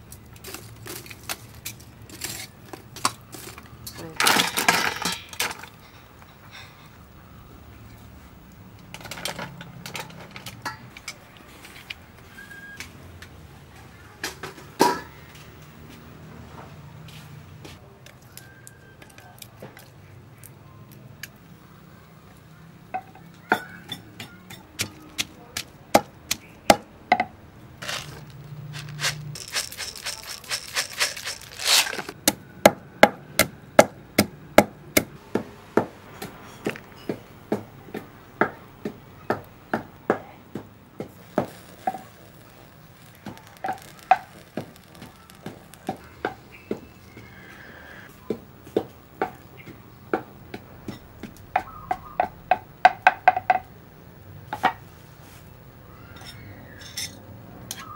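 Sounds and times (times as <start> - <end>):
peppercorns poured into mortar: 27.8 - 32.2, 41.2 - 46.7.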